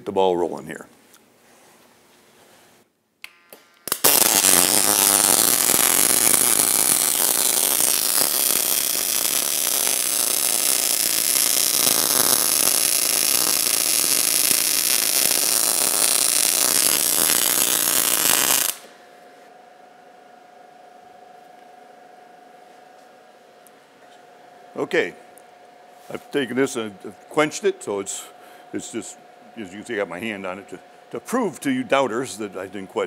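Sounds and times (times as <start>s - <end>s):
welding arc crackling: 3.5s - 19.0s.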